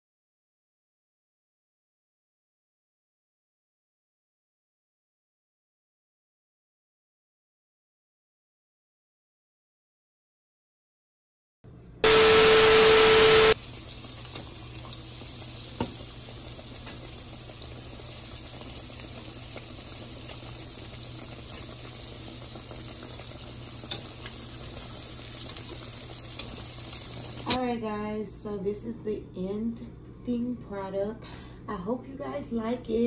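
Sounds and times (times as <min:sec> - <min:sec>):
loud hiss over hum: 0:12.0 - 0:27.6
food deep-frying in oil: 0:12.1 - 0:27.6.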